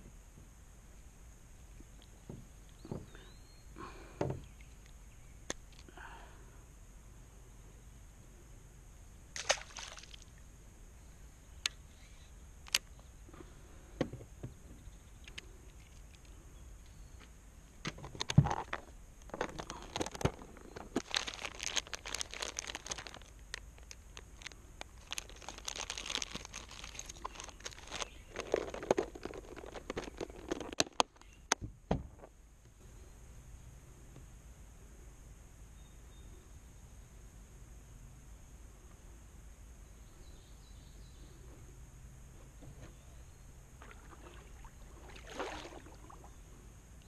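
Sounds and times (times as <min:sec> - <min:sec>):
plastic bags crinkling: 0:19.3 - 0:31.1.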